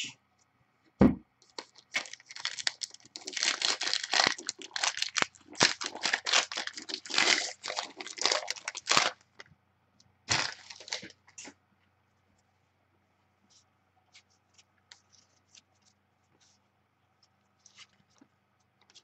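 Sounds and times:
foil wrapper crinkling and tearing: 0:01.5 - 0:09.2, 0:10.3 - 0:11.1.

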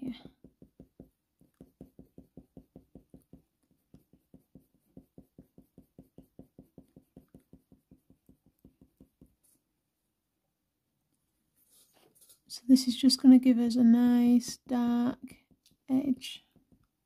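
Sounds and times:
colour pencil shading on paper: 0:00.0 - 0:09.8, 0:13.6 - 0:17.0.

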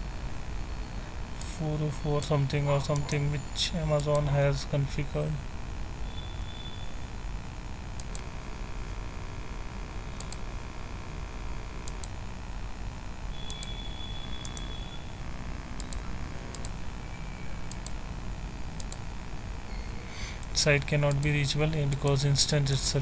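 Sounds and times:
low steady hum: 0:00.0 - 0:23.0
computer mouse clicking: 0:08.0 - 0:08.3, 0:10.2 - 0:10.5, 0:11.8 - 0:12.2, 0:13.4 - 0:13.8, 0:14.4 - 0:14.7, 0:15.8 - 0:16.8, 0:17.7 - 0:18.0, 0:18.8 - 0:19.0, 0:21.1 - 0:22.8.

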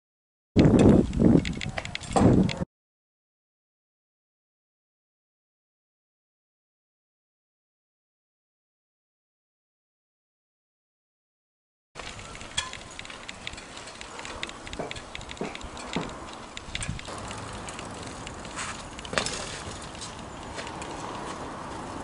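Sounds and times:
light clicks and knocks: 0:12.0 - 0:21.2.

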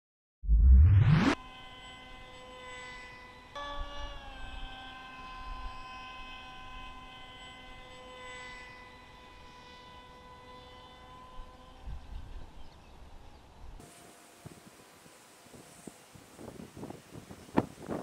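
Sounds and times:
model aircraft motor whining: 0:01.4 - 0:18.0
wind rumble on microphone: 0:14.4 - 0:18.0.

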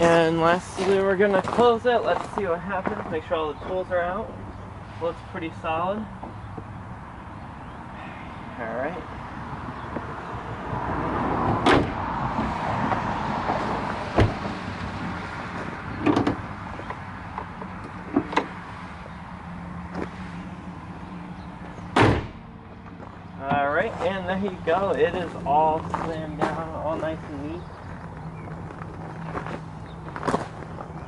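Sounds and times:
hood slammed shut: 0:11.5 - 0:12.0, 0:14.1 - 0:14.6, 0:16.0 - 0:16.5, 0:21.9 - 0:22.6
metal hood knocks and clunks: 0:16.0 - 0:16.5, 0:21.9 - 0:22.5.

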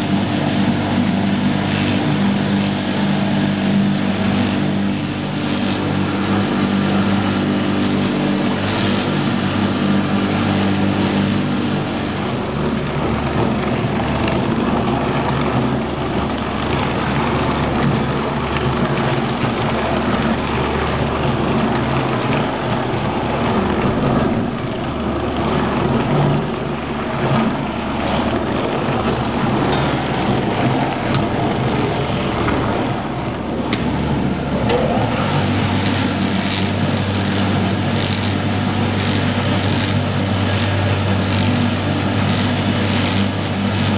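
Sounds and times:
bowl cutter machine whirring: 0:00.0 - 0:43.9.

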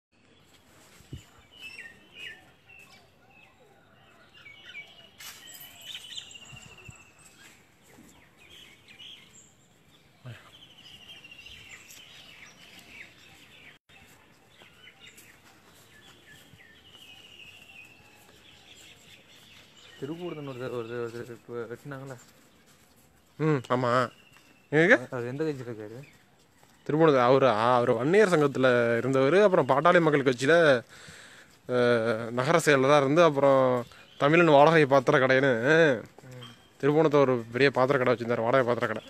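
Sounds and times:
small birds chirping: 0:00.1 - 0:39.0.

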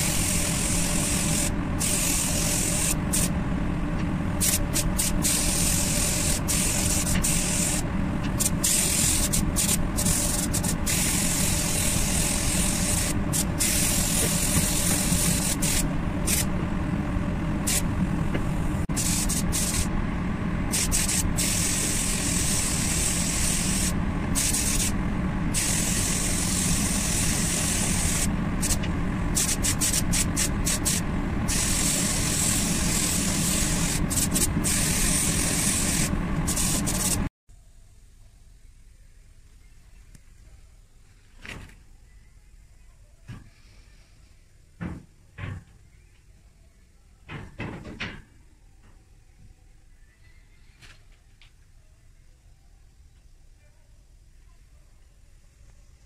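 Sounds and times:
spray gun hissing: 0:00.0 - 0:03.3, 0:04.4 - 0:07.8, 0:08.4 - 0:16.5, 0:17.6 - 0:19.9, 0:20.7 - 0:37.3.

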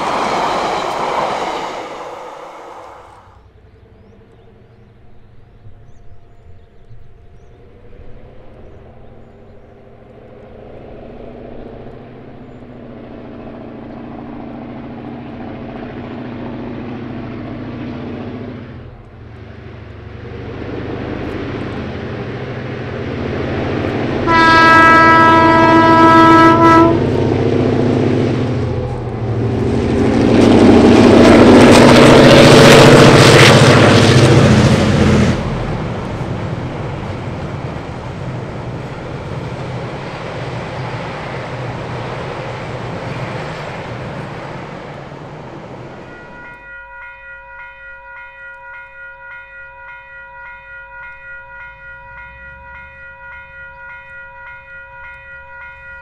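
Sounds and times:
train carriages rolling: 0:00.0 - 0:03.7
diesel locomotive engines: 0:00.0 - 0:56.0
locomotive horn blast: 0:24.2 - 0:27.5.

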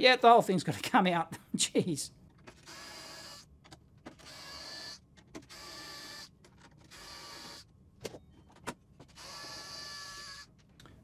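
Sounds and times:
electric screwdriver whirring: 0:02.5 - 0:03.5, 0:04.2 - 0:06.3, 0:06.9 - 0:07.7, 0:09.1 - 0:10.5.

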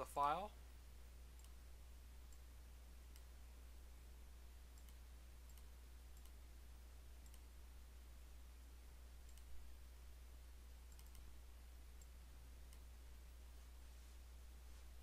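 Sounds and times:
steady low hum: 0:00.0 - 0:15.0
computer mouse clicks: 0:01.3 - 0:01.6, 0:03.1 - 0:03.4, 0:04.7 - 0:06.4, 0:07.2 - 0:07.6, 0:09.2 - 0:09.6, 0:10.9 - 0:11.4, 0:12.0 - 0:12.9.

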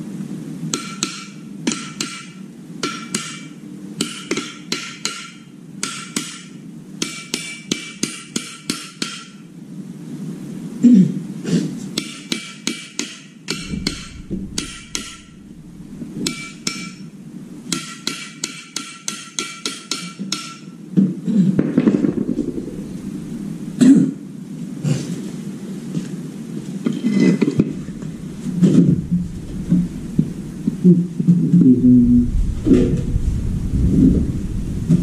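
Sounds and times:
hammer striking metal: 0:00.8 - 0:09.4, 0:12.0 - 0:20.7
steady low hum: 0:09.5 - 0:11.4, 0:13.5 - 0:18.4, 0:21.2 - 0:35.0.

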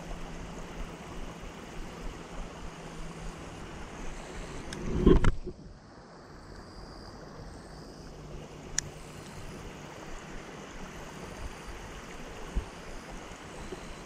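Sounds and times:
wind on microphone: 0:00.0 - 0:05.8, 0:09.6 - 0:14.0.

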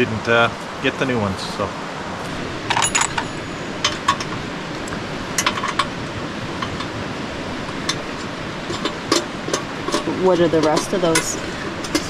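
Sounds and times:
steady rushing noise: 0:00.0 - 0:12.0
metal parts clinking: 0:02.7 - 0:04.2.

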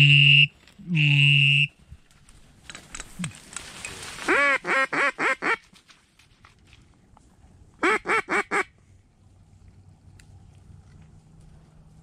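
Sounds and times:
duck quacking: 0:04.3 - 0:05.6, 0:07.8 - 0:08.7.

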